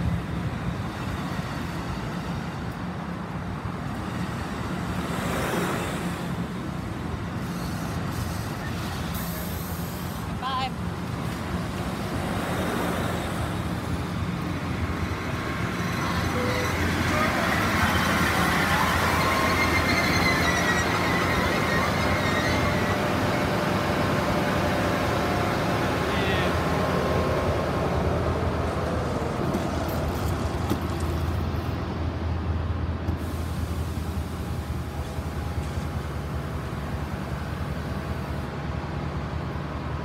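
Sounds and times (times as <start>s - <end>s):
train wheels on rails: 0.0s - 40.0s
thin high squeals: 15.7s - 23.5s.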